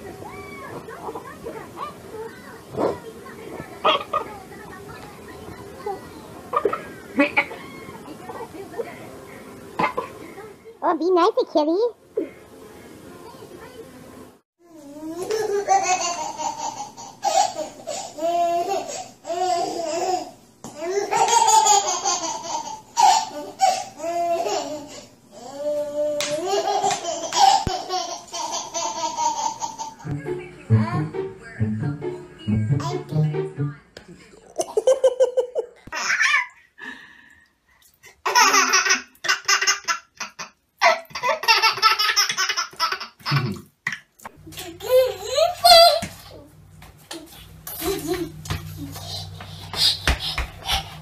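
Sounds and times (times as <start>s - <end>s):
baby laughing: 15.1s - 25.0s, 26.2s - 30.0s, 38.2s - 43.6s, 44.5s - 46.2s.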